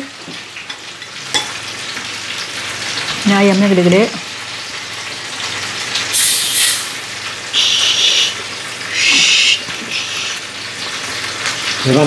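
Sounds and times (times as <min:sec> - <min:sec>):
soda water fizzing: 0:01.2 - 0:12.0
short loud hisses: 0:06.1 - 0:07.0.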